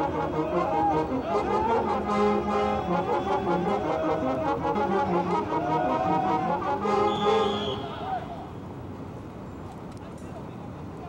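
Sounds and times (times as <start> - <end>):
horns playing a tune: 0.0 - 8.2.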